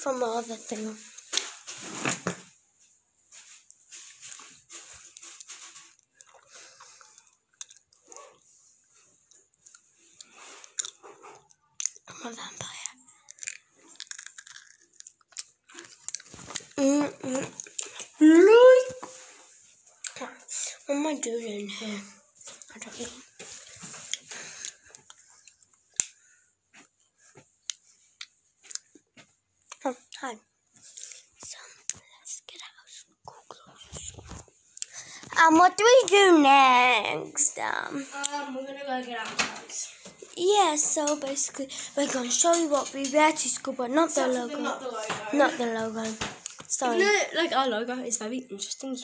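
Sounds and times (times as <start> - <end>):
rustling: 0.4 - 2.6, 3.2 - 6.8.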